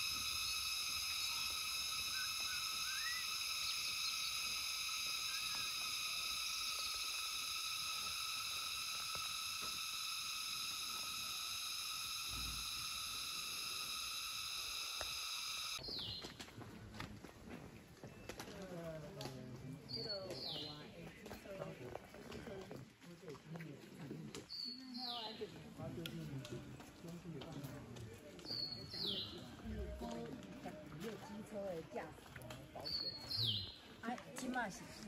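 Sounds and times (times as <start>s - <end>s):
high-pitched insect chorus: 0.0s - 15.8s, 28.5s - 30.2s
short bird chirps: 2.1s - 4.4s.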